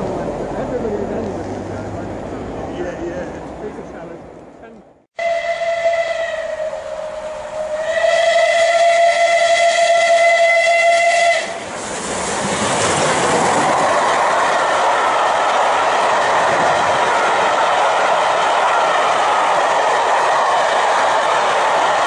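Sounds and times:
steam locomotive whistle: 0:05.2 - 0:11.6
train rushing past: 0:05.2 - 0:22.0.

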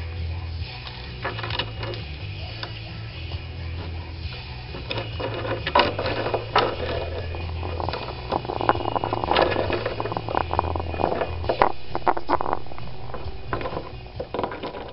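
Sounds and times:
parrot beak clicking and scraping: 0:04.2 - 0:14.9.

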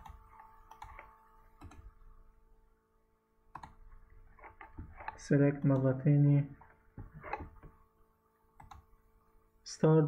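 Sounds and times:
computer mouse clicks: 0:00.0 - 0:01.9, 0:03.5 - 0:06.0, 0:08.6 - 0:08.8
low steady hum: 0:00.0 - 0:10.0.

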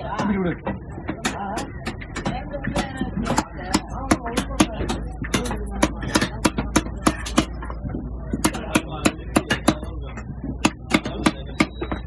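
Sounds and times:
knife chopping on wooden block: 0:01.2 - 0:07.8, 0:08.4 - 0:09.9, 0:10.6 - 0:12.0.

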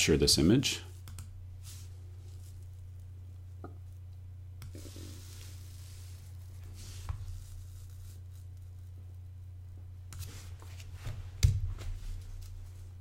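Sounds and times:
steady low hum: 0:00.0 - 0:13.0
soft rustles: 0:01.6 - 0:03.1, 0:04.7 - 0:09.0, 0:10.2 - 0:13.0.

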